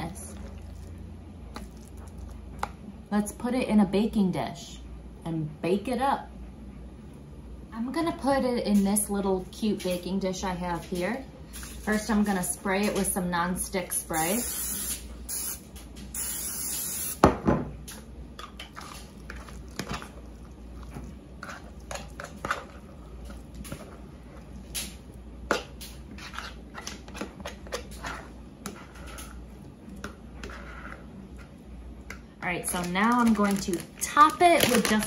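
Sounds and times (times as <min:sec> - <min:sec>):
cooking spray hissing: 0:14.1 - 0:17.2.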